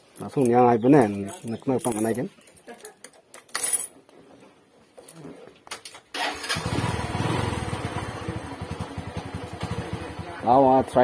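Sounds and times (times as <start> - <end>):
motorcycle engine starting and idling: 6.1 - 11.0.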